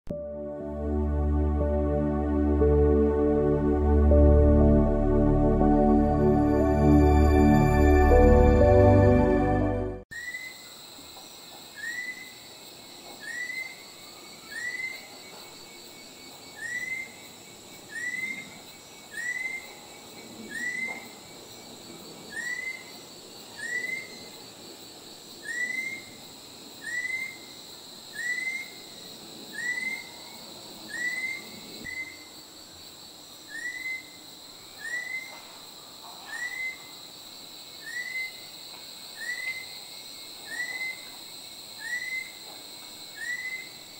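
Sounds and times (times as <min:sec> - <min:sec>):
high insect drone: 0:10.1 - 0:43.9.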